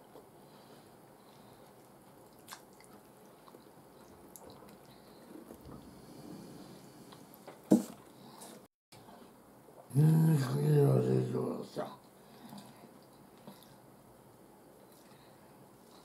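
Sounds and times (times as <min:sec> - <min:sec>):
chewing: 0:01.2 - 0:05.9, 0:12.4 - 0:13.8, 0:14.8 - 0:16.0.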